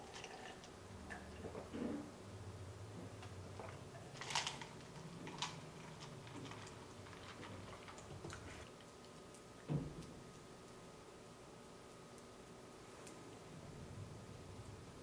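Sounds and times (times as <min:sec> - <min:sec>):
ice ticking in plastic cup: 0:00.0 - 0:01.3.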